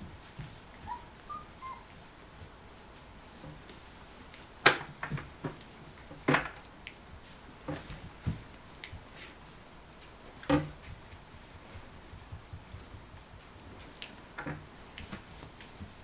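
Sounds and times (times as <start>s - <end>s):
puppies whimpering: 0.8s - 2.0s.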